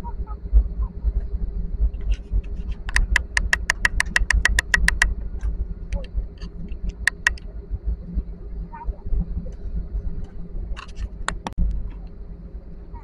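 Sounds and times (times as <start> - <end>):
airliner cabin rumble: 0.0 - 13.0
sharp clicks: 2.8 - 7.4, 10.8 - 11.6.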